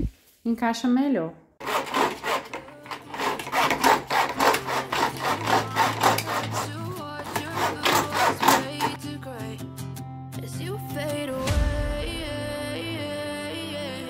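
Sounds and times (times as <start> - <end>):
saw cutting plastic panel: 1.6 - 9.0
background music: 1.6 - 14.0.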